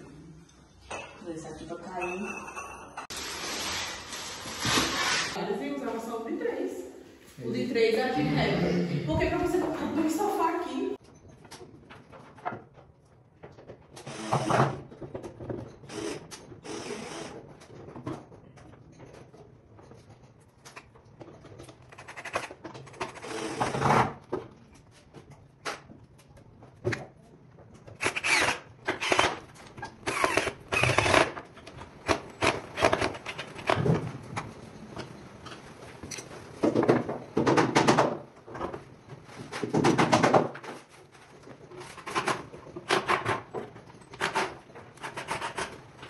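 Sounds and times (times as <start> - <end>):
cordless drill driving screws: 14.0 - 14.7, 15.9 - 17.4, 23.2 - 24.0, 28.0 - 29.4, 30.0 - 31.3.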